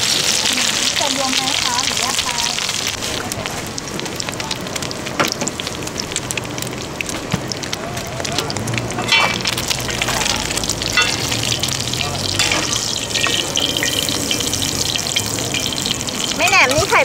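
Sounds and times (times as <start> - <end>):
omelet sizzling in oil: 0.0 - 17.0
metal utensils scraping pan: 9.0 - 16.8.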